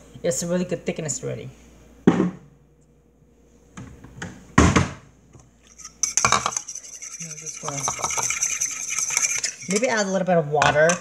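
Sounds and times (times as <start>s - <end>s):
metal spoon clinking on bowl: 5.7s - 11.0s.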